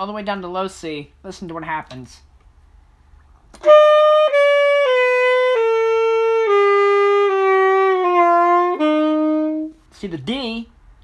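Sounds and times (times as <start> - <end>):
saxophone playing descending scale: 3.6 - 9.8.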